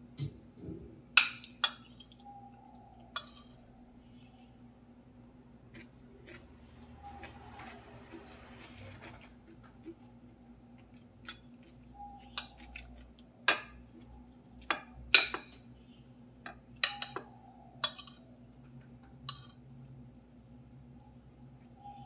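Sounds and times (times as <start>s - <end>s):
metal spoon clinking on plate: 1.2s - 2.2s, 3.2s - 3.6s, 16.5s - 18.2s, 19.3s - 19.6s.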